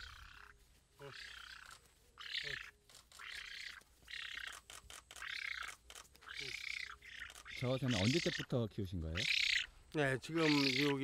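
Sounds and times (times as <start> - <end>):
wings flapping: 0.0 - 8.4
bird hoarse begging calls: 0.0 - 11.0.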